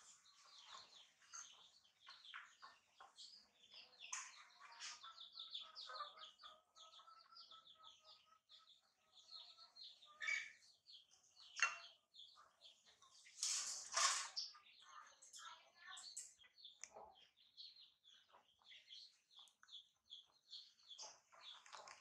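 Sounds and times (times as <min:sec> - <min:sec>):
small birds chirping: 0:00.0 - 0:22.0.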